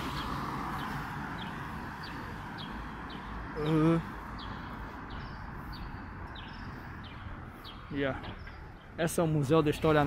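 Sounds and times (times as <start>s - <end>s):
street hum: 0.0s - 10.0s.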